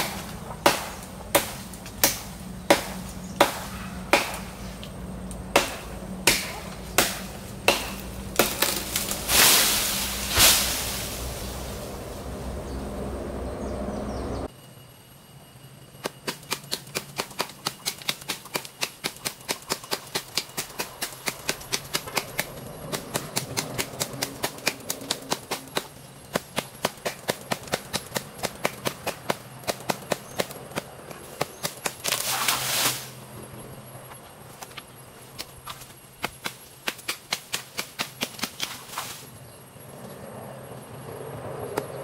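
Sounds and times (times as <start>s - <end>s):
hand saw cutting branch: 0.0s - 4.6s, 5.5s - 11.0s, 16.4s - 30.5s.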